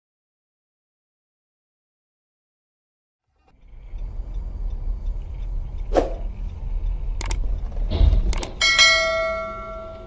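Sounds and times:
car cabin road rumble: 0:03.5 - 0:09.7
sharp clicks: 0:05.0 - 0:08.6
bell chime: 0:08.6 - 0:10.0.

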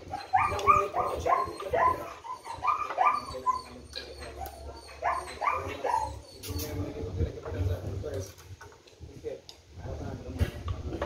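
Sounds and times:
dog barking: 0:00.1 - 0:03.4, 0:05.0 - 0:06.1.

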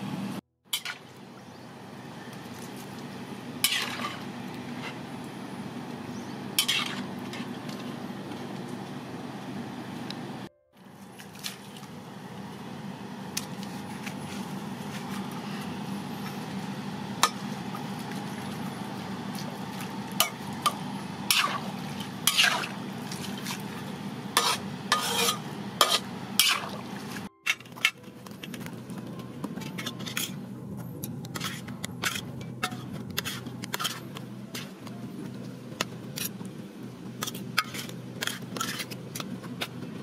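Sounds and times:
steady low hum: 0:00.0 - 0:40.0
metal spoon scraping a pan: 0:03.6 - 0:05.0, 0:06.6 - 0:07.5, 0:20.2 - 0:23.6, 0:24.4 - 0:26.7, 0:29.6 - 0:30.4, 0:31.3 - 0:34.7, 0:37.2 - 0:39.7.

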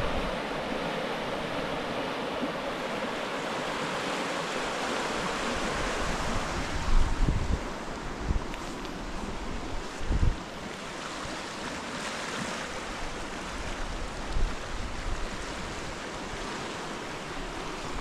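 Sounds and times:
river rushing: 0:00.0 - 0:18.0
wind buffeting microphone: 0:05.0 - 0:11.4, 0:12.8 - 0:18.0.

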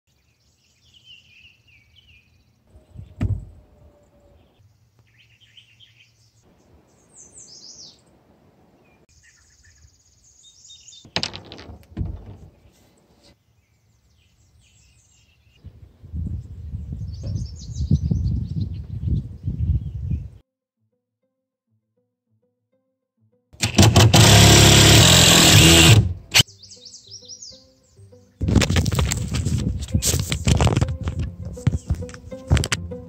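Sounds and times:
birds chirping: 0:00.1 - 0:11.2, 0:11.8 - 0:20.4, 0:26.4 - 0:28.5, 0:31.5 - 0:32.5.

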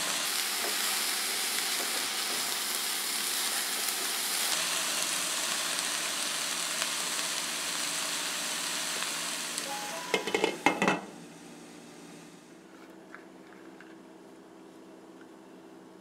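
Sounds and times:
vegetables sizzling in a pot: 0:00.0 - 0:12.4.

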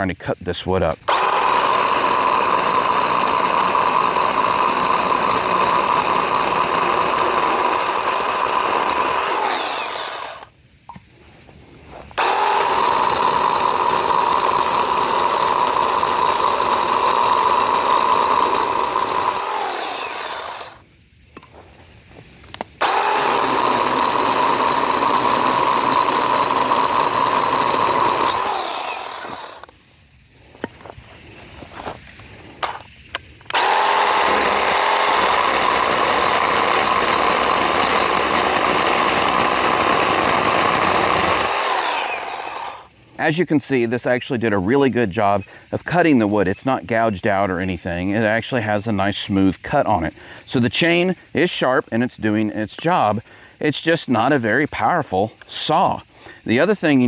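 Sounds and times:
cordless chainsaw whining: 0:01.0 - 0:10.5, 0:12.2 - 0:20.8, 0:22.8 - 0:29.7, 0:33.5 - 0:43.4.

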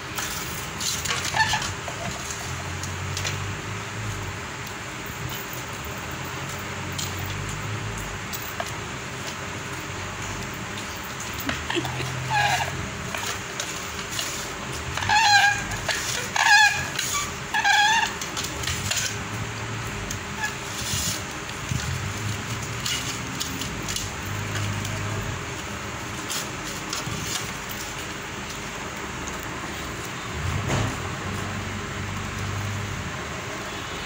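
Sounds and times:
toddler squealing: 0:11.4 - 0:12.8.

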